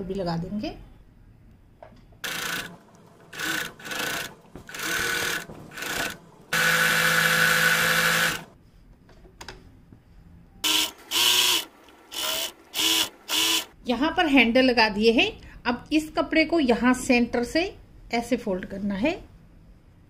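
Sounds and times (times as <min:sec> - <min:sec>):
sewing machine stitching: 0:02.2 - 0:08.6, 0:10.7 - 0:13.7.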